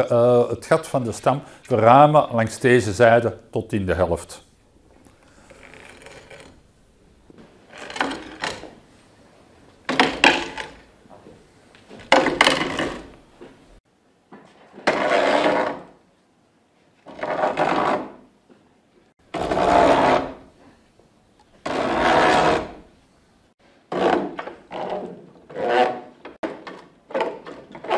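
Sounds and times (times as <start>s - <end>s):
auger scraping wood: 4.9s - 8.8s, 12.1s - 13.2s, 14.7s - 15.9s, 17.1s - 18.2s, 19.3s - 20.5s, 21.6s - 22.9s, 23.9s - 26.4s.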